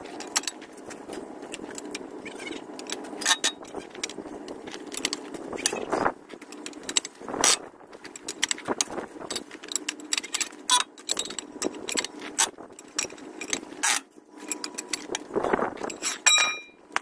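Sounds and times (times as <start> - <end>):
ringing metal clink: 16.0 - 17.0.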